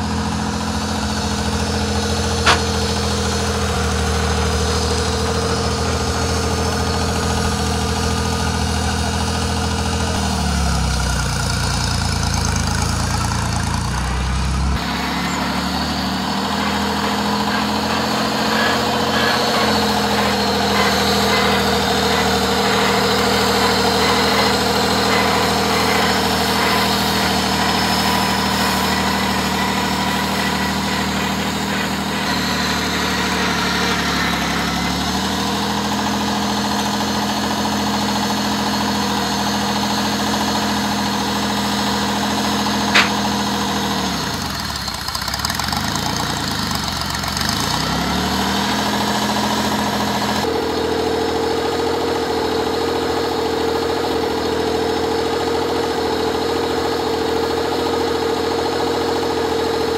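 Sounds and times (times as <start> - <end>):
tractor engine running slowly: 0.0 - 59.9
sharp click: 2.5 - 2.9, 43.0 - 43.3.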